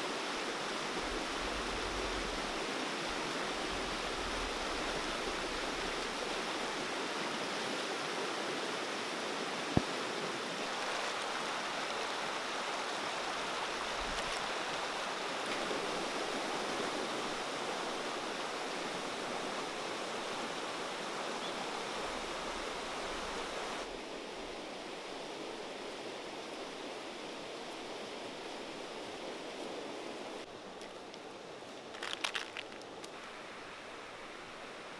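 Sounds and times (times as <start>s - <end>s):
river rushing over rocks: 0.0s - 25.1s.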